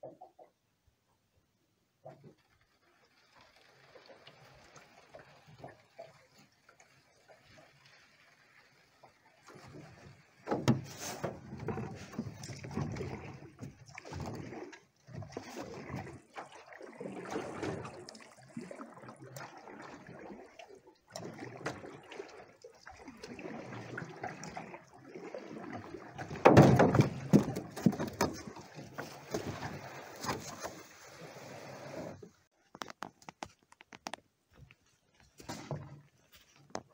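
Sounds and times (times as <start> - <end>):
paddle strokes in water: 2.0 - 33.6
boat knocking and scraping ashore: 9.4 - 14.5, 26.1 - 32.5, 35.2 - 36.9.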